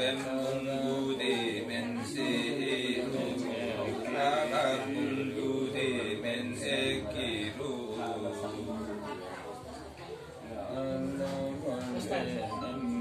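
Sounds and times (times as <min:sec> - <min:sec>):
person chanting: 0:00.0 - 0:09.2.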